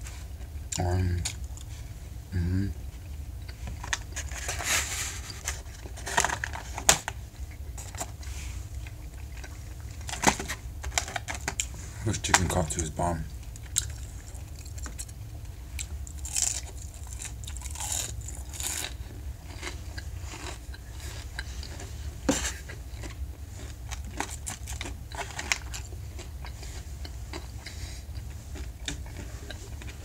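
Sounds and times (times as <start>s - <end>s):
steady low hum: 0.0s - 30.0s
crunchy chewing: 13.4s - 30.0s.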